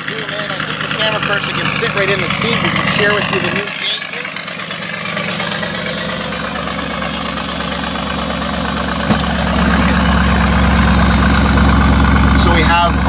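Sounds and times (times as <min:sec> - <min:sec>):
car engine idling: 0:00.0 - 0:13.0
short knock: 0:09.0 - 0:09.4.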